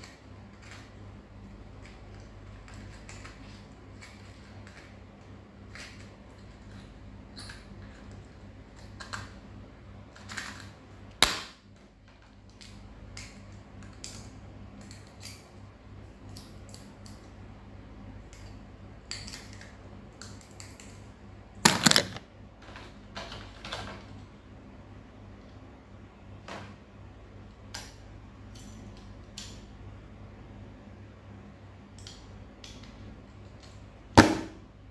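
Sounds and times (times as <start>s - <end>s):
packaging handling clicks and rustles: 21.6s - 24.2s.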